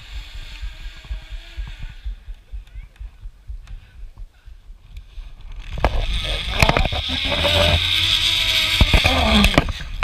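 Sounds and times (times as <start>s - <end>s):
zip line pulley whirring on cable: 0.0s - 2.8s, 5.0s - 10.0s.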